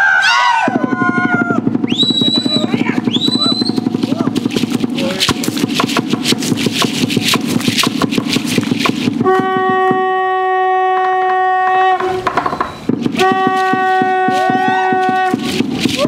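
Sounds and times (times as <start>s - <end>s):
wooden drum beating: 0.7s - 16.0s
horn long notes: 9.2s - 12.4s, 13.0s - 15.6s.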